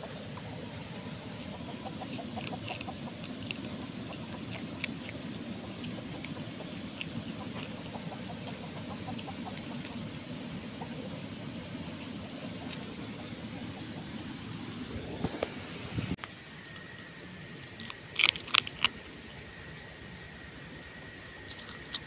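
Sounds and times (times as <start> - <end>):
low background noise: 0.0 - 22.0
crab shell crunching: 1.4 - 10.3, 16.8 - 22.0.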